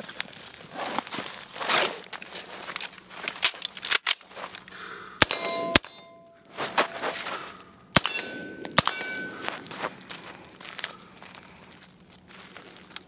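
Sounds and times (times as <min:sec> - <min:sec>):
metallic ring: 0:05.2 - 0:10.0.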